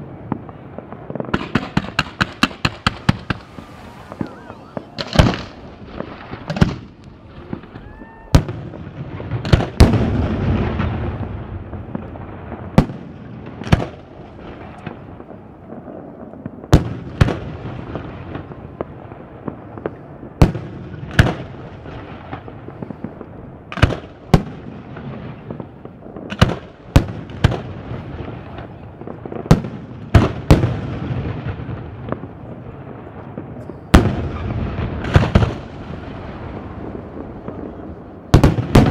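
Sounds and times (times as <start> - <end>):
rolling rumbling echoes: 0.0 - 9.4
fireworks bangs: 0.0 - 38.9.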